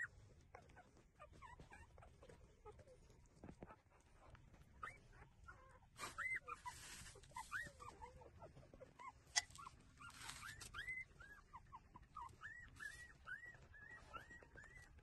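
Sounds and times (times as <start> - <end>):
faint rustling: 0.0 - 15.0
puppies squeaking and whimpering: 0.0 - 15.0.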